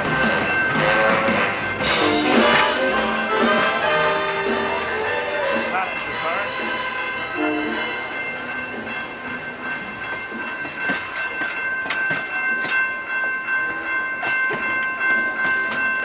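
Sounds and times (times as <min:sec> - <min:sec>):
train cars rolling by: 0:00.0 - 0:16.0
wheels clicking over rail joints: 0:08.6 - 0:16.0.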